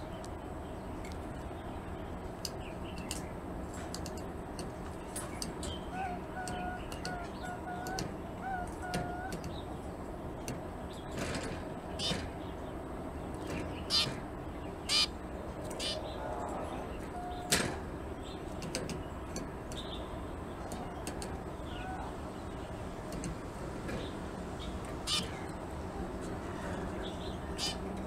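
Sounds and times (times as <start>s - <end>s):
finch chirps: 13.6s - 16.2s, 24.0s - 25.5s, 27.1s - 27.8s.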